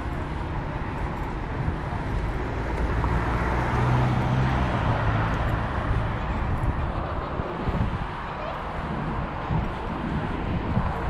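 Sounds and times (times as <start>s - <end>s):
vehicle passing: 2.5s - 9.2s.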